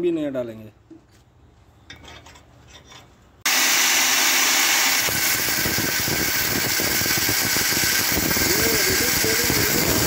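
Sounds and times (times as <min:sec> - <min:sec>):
angle grinder cutting metal: 0:03.5 - 0:10.0.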